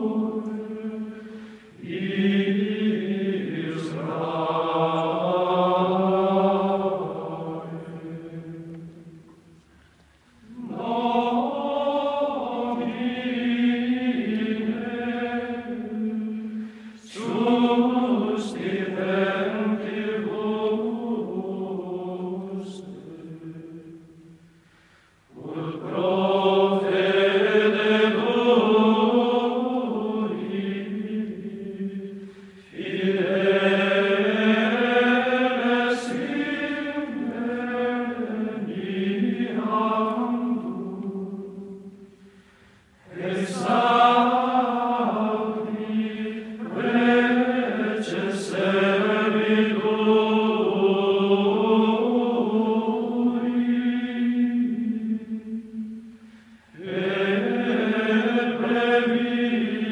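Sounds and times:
slow sung chant: 0:00.0 - 0:59.9.

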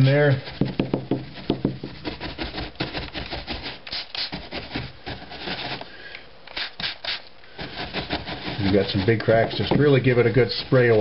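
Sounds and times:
brush scrubbing foam: 0:00.0 - 0:05.9, 0:06.5 - 0:11.0
spray bottle hisses: 0:06.5 - 0:07.3.

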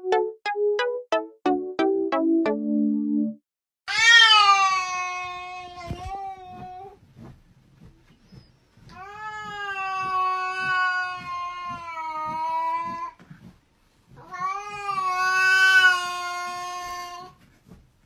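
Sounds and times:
cat yowling: 0:03.9 - 0:05.9.

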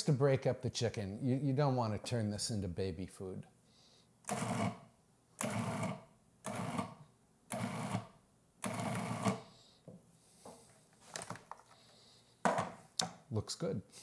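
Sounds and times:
food processor motor whirring: 0:05.4 - 0:09.4.

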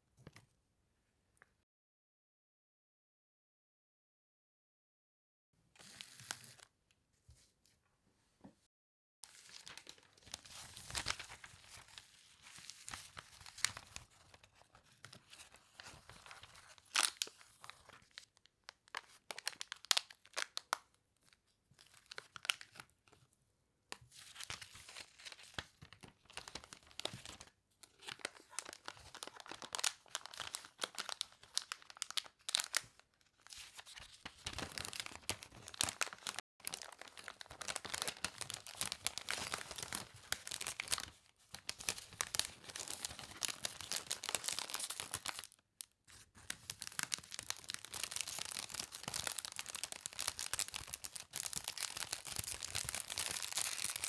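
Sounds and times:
cellophane crinkling: 0:09.3 - 0:18.3, 0:24.3 - 0:54.0.

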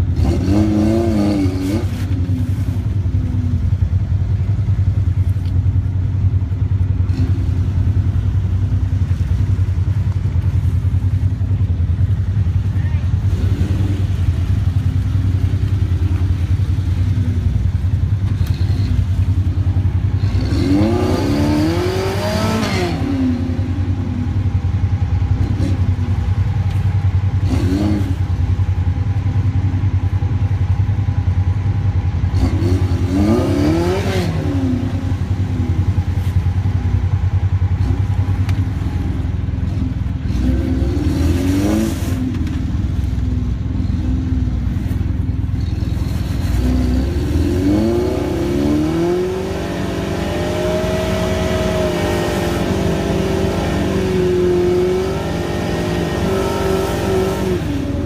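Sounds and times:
low engine rumble: 0:00.0 - 0:58.0
small engine revving: 0:20.2 - 0:23.7, 0:45.6 - 0:58.0.

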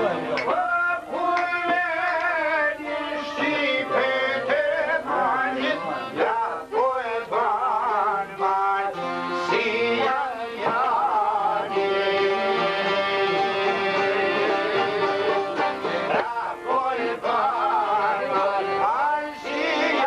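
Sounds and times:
men singing folk song: 0:00.0 - 0:20.0
plucked long-necked lutes: 0:11.7 - 0:17.1.

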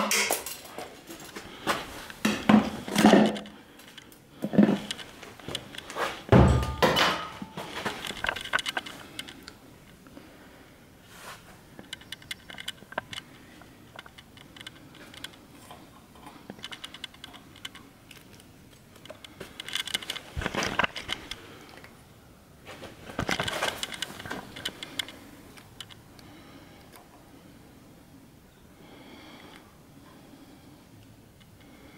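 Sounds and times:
handling clicks and rustles: 0:00.0 - 0:10.2, 0:11.2 - 0:22.0, 0:22.6 - 0:26.3.

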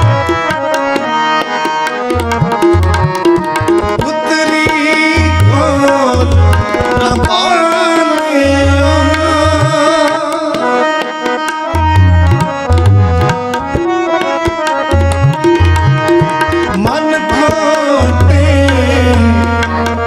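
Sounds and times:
harmonium drone chords: 0:00.0 - 0:20.0
tabla rhythm: 0:00.0 - 0:20.0
man singing: 0:03.7 - 0:11.2, 0:16.5 - 0:20.0.

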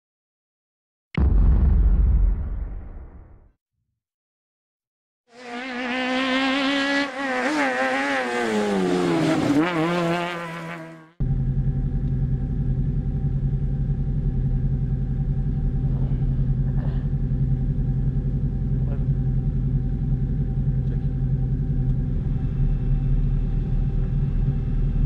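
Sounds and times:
car engine revving: 0:05.4 - 0:25.0
car engine idling: 0:11.2 - 0:25.0.

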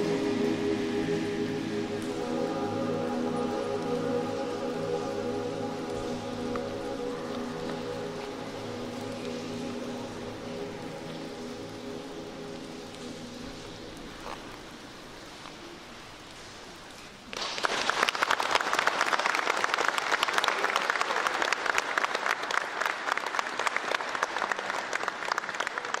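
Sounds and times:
audience applause: 0:17.3 - 0:26.0.

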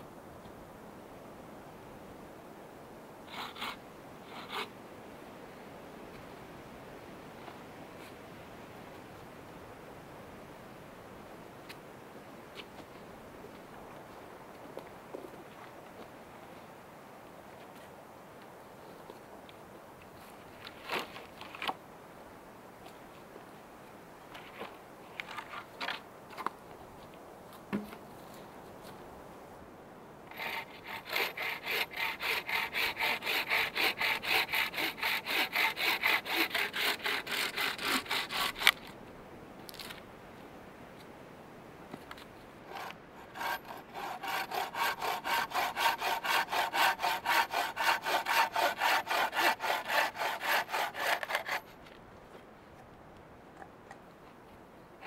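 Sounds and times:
bowsaw cutting through log: 0:03.3 - 0:04.7, 0:30.3 - 0:39.0, 0:42.7 - 0:51.8.

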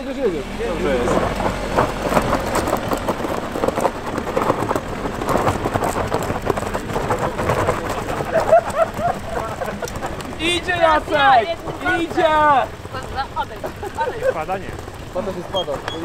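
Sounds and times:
snow chains rattling and clinking: 0:00.0 - 0:16.0.

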